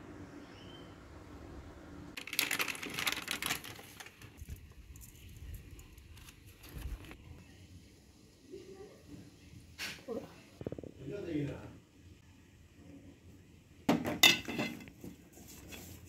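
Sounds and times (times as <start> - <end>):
crinkling handling noise: 2.2 - 7.4.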